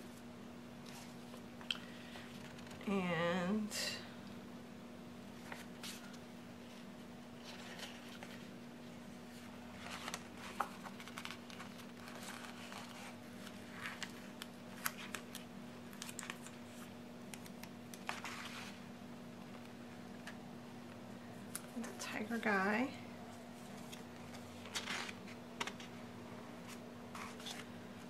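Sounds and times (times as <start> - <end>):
paper rustling and crinkling: 5.3 - 8.6, 9.2 - 20.4, 23.3 - 26.0, 26.6 - 28.0.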